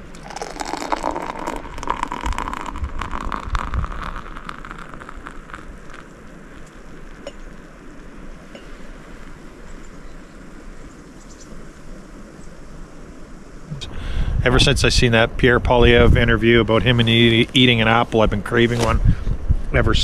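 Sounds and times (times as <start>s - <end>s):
wind buffeting microphone: 0.0s - 5.9s, 13.7s - 20.0s.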